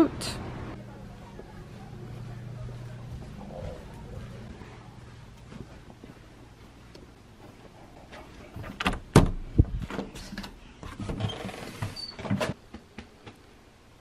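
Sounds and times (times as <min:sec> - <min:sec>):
door knocks and thumps: 0:08.8 - 0:10.0.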